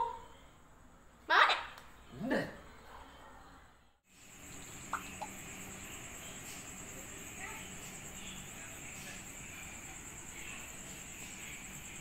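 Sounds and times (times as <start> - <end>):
crickets trilling: 4.1 - 12.0.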